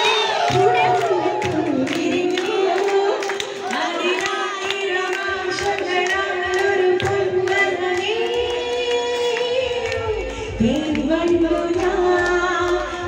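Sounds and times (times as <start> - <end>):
music with steady beat: 4.0 - 13.0.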